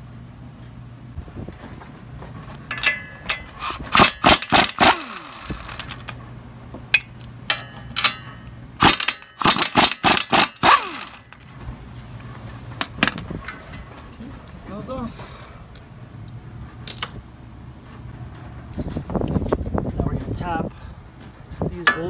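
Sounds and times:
impact wrench hammering: 2.7 - 6.1, 6.9 - 11.4
impact wrench whine: 2.7 - 6.2, 7.0 - 11.5.

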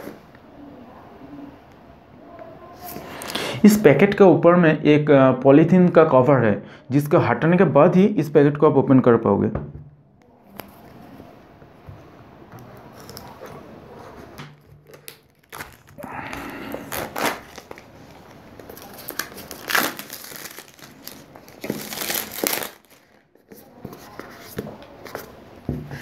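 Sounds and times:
plastic wrap crinkling and tearing: 12.8 - 24.2.

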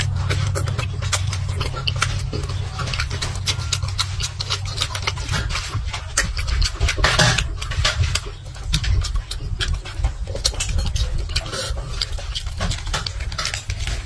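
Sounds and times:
wet chewing and lip-smacking: 0.0 - 14.0.

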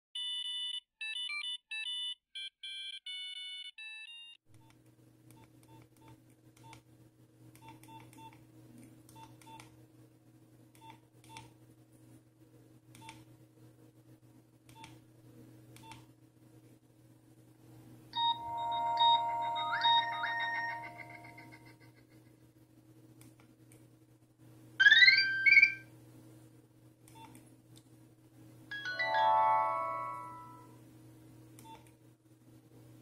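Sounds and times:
electronic beeping melody: 18.2 - 21.7, 24.8 - 25.8, 28.7 - 30.7.

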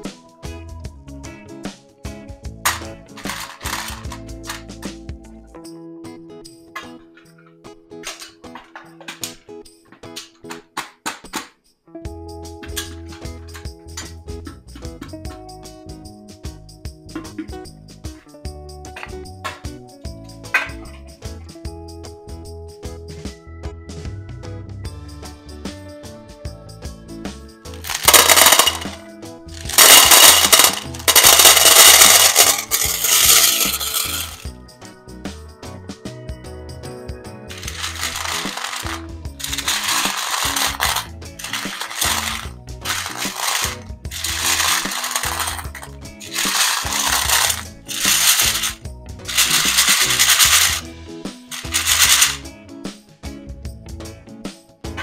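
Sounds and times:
background music: 0.0 - 55.0
candies clattering into metal tin: 2.6 - 4.7, 8.0 - 9.4, 12.6 - 13.3, 27.7 - 34.5, 37.5 - 50.9, 51.5 - 52.4.

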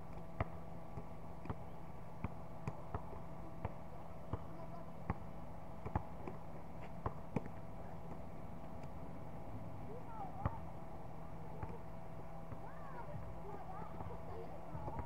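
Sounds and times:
background hum: 0.0 - 15.0
basketball bouncing on a court: 0.1 - 8.2, 10.1 - 10.7, 11.4 - 11.9, 12.5 - 15.0.

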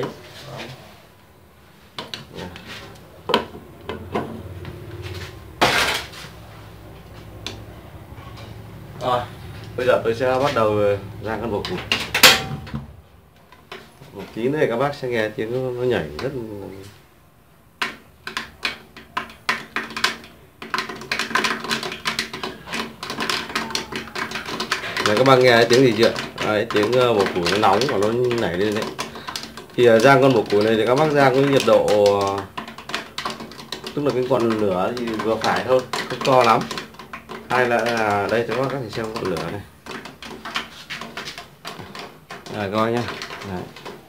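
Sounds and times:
beetles clicking in a pan: 8.6 - 12.3, 17.7 - 44.0.

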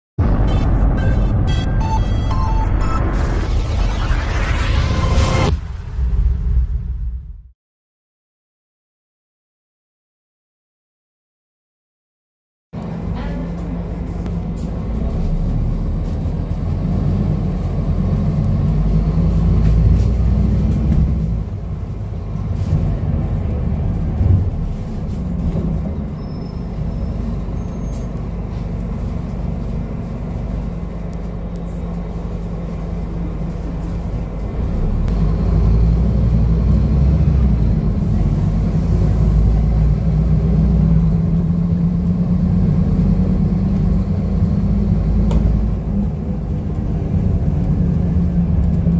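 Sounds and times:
bus diesel engine accelerating: 12.8 - 48.9.

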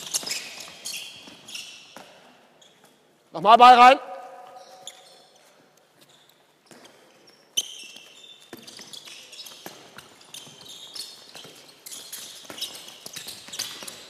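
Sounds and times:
shoes squeaking on floor: 0.0 - 3.3, 4.3 - 14.0.

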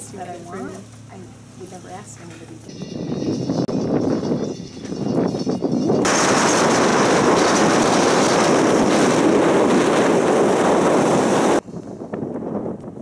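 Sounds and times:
wind rushing: 2.7 - 13.0.

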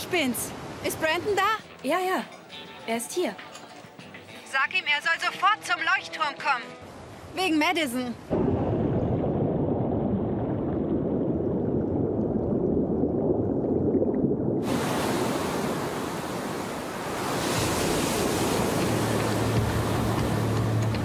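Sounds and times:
muffled underwater surf rumble: 8.3 - 20.8
ocean waves hissing: 14.6 - 21.0.

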